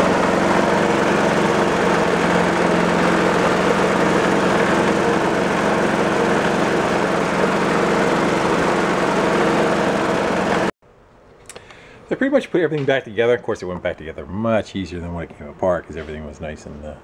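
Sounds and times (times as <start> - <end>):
snowblower engine running: 0.0 - 10.8.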